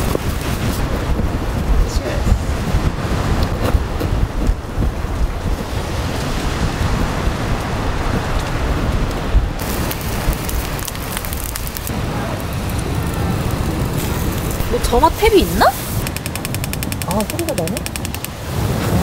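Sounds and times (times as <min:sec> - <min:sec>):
wind buffeting microphone: 0:00.0 - 0:19.0
meat sizzling on grill: 0:09.6 - 0:11.9.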